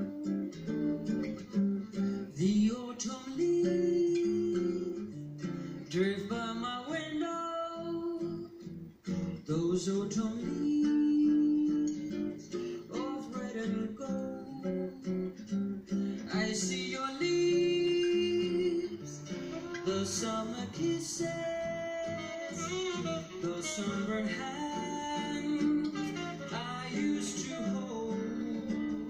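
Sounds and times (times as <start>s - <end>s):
acoustic guitar: 0.0s - 29.0s
woman singing: 9.5s - 12.1s, 16.3s - 29.0s.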